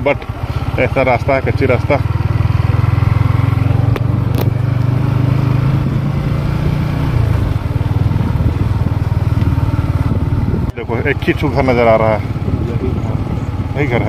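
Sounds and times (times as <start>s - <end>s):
motorcycle engine rumbling: 0.0s - 14.0s.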